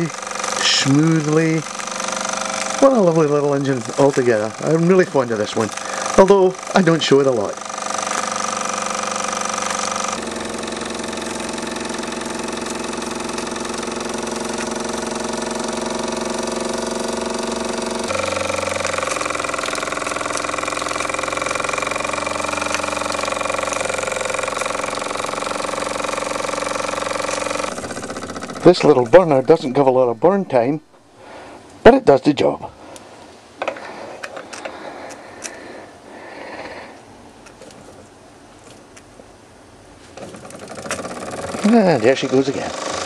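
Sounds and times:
toy steam engine whirring: 0.0s - 29.9s, 40.2s - 43.0s.

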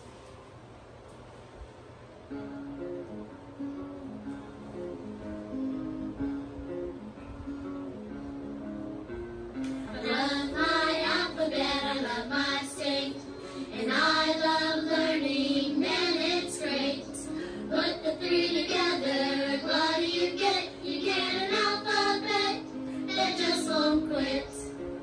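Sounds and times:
instrumental backing: 0.1s - 25.0s
voices singing a children's song: 9.8s - 24.8s.

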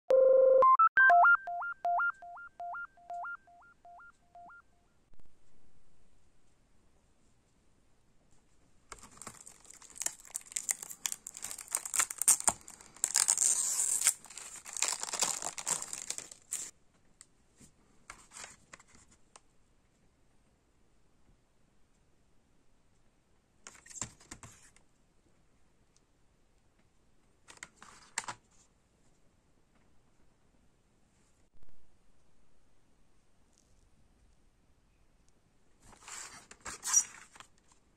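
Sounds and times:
synthesizer jingle: 0.1s - 4.7s.

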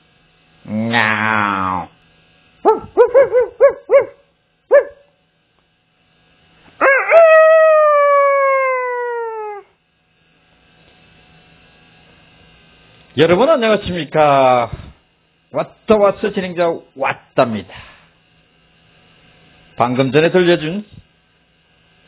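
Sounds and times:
rooster crowing: 6.8s - 9.7s.

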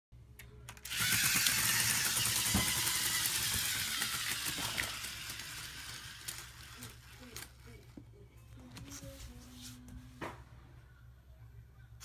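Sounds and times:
electric motors whining: 0.8s - 7.9s.

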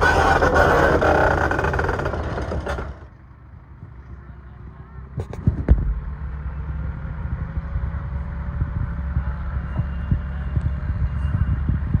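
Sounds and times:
tractor engine rumbling: 0.0s - 12.0s.

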